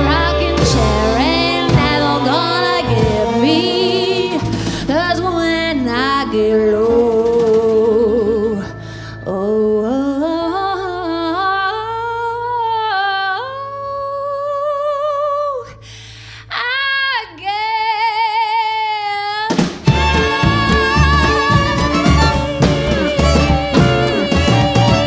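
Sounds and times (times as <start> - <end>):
woman singing unaccompanied: 0.0 - 8.7, 16.5 - 25.0
band playing with fiddle: 19.8 - 25.0.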